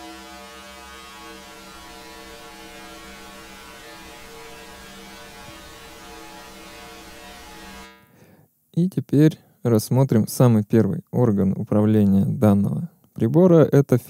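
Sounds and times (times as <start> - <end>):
steady hiss: 0.0 - 8.2
drone of resonant tones: 0.0 - 8.4.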